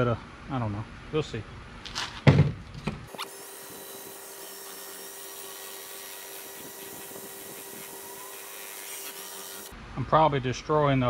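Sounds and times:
electric drill mixing paint: 3.1s - 9.7s.

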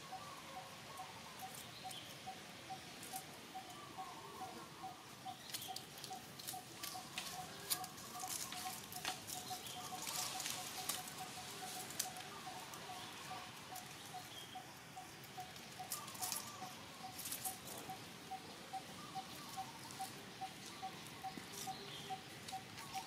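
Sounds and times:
clicks and rustles on leaves: 2.9s - 3.4s, 5.3s - 18.2s, 19.2s - 23.0s.

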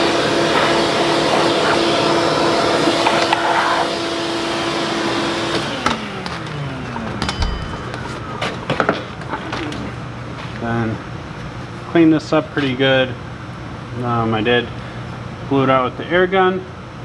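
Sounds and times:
shop vacuum running: 0.0s - 11.0s.

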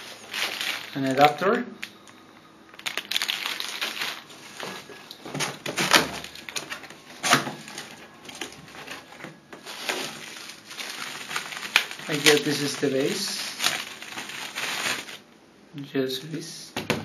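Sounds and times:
plastic bag rustling: 0.0s - 2.0s, 2.7s - 15.3s
hands scraping styrofoam packing: 5.9s - 15.2s.

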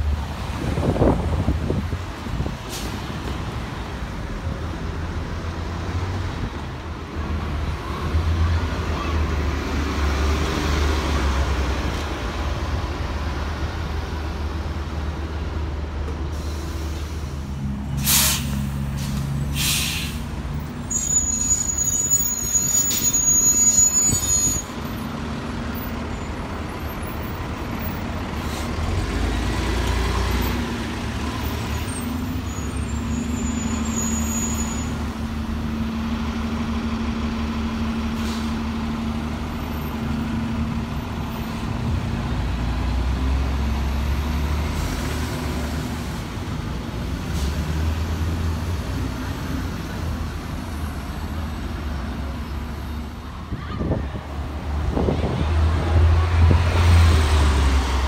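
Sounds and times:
bus engines rumbling: 0.0s - 58.0s
air-brake hisses: 18.0s - 20.3s.

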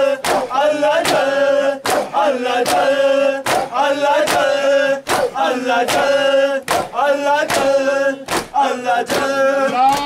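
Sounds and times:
men chanting together: 0.0s - 10.0s
chest-beating slaps: 0.2s - 6.1s, 6.7s - 10.0s.

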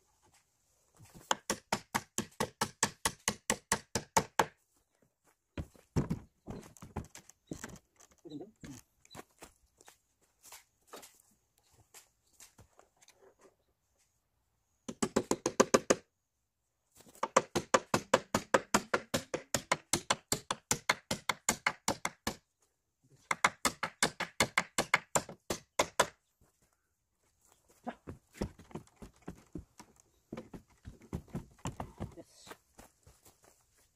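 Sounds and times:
hammer driving nails into wood: 1.2s - 4.6s, 14.9s - 16.1s, 17.2s - 22.4s, 23.2s - 26.2s.

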